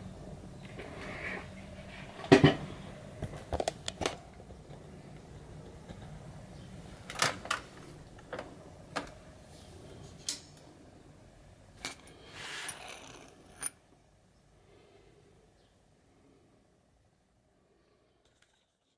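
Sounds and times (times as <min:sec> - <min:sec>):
metal tools clinking: 0:11.8 - 0:13.7
metal tool scraping: 0:11.9 - 0:13.7.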